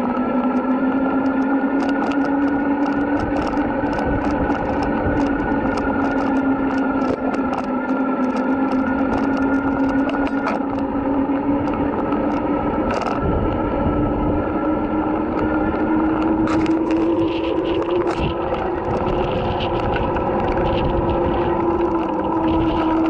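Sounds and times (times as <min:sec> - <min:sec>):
electric motor whining: 0:00.0 - 0:23.0
camera mount rattling: 0:11.6 - 0:13.2.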